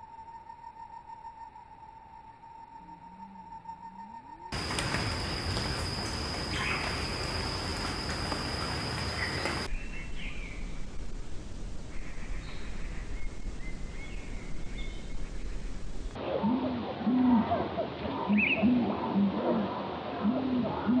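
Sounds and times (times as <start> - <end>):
high-pitched insect drone: 0.0 - 9.7
faint bird chirps: 2.4 - 10.8.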